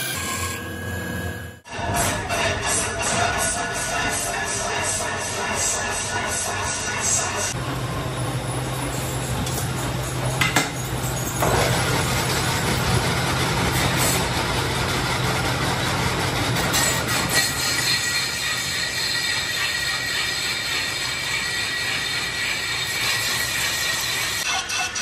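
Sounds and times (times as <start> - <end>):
rasping scraping of lathe work: 16.0 - 24.4.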